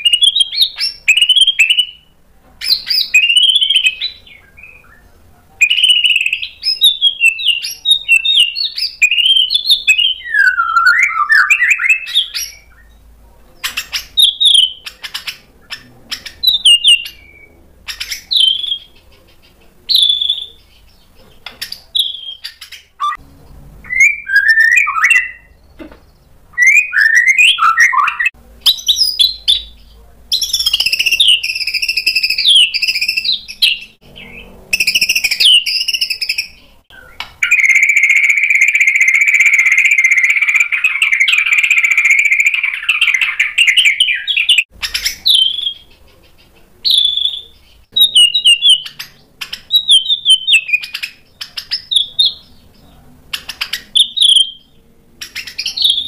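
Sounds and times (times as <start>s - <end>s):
bird singing whistled phrases: 0.0s - 13.0s, 13.8s - 19.0s, 19.9s - 20.8s, 22.0s - 23.2s, 23.8s - 25.6s, 26.6s - 46.0s, 46.8s - 52.5s, 53.4s - 56.0s
sharp bird clicks: 13.6s - 17.3s, 17.9s - 23.2s, 48.2s - 49.8s, 53.3s - 54.4s.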